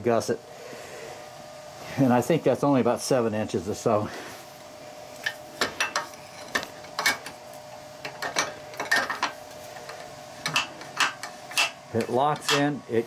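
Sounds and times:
faint steady hum: 0.0 - 13.0
metal clinks and knocks: 8.0 - 12.7.

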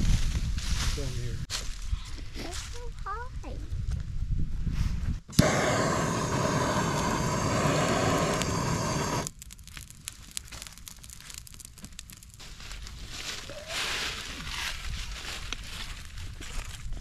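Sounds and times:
propane torch hissing: 5.3 - 9.3
torch igniter click: 5.3 - 9.3
twigs crackling in fire: 5.3 - 17.0.

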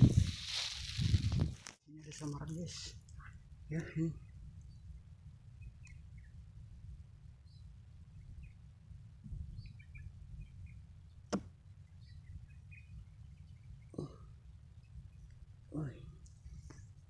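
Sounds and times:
faint bird chirps: 3.1 - 16.6.

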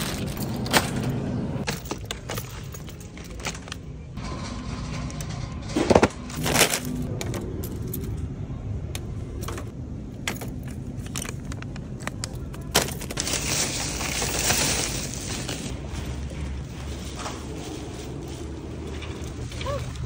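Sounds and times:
shopping cart jangling and rattling: 0.0 - 8.2, 12.6 - 20.0.

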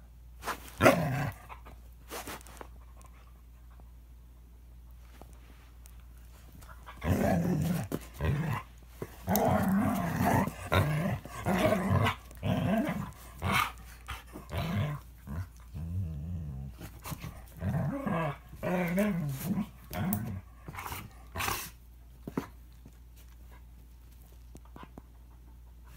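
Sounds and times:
dogs growling: 6.8 - 21.7.

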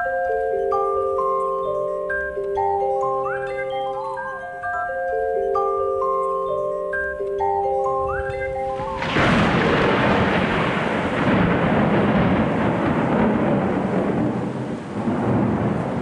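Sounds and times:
mallet percussion music: 0.0 - 11.5
thunderclap: 8.1 - 16.0
rain: 8.3 - 16.0
rumble of thunder: 8.3 - 16.0.

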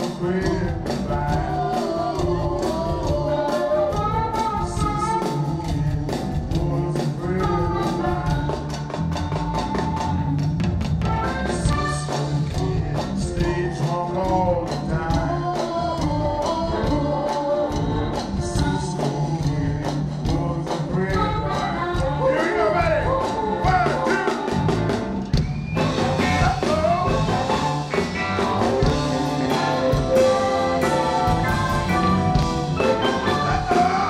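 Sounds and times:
drum beat: 0.0 - 34.0
electric guitar: 0.0 - 34.0
funk band playing: 0.0 - 34.0
harmonica melody: 21.0 - 24.8, 25.8 - 34.0.

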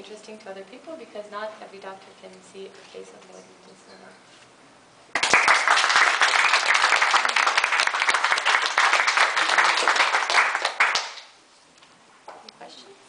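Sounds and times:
group of people applauding: 5.1 - 11.4.

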